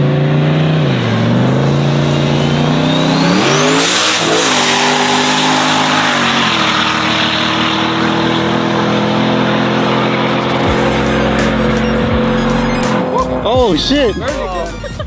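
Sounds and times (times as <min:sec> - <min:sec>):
engine at full throttle: 0:00.0 - 0:13.8
turbo whistle: 0:09.9 - 0:13.4.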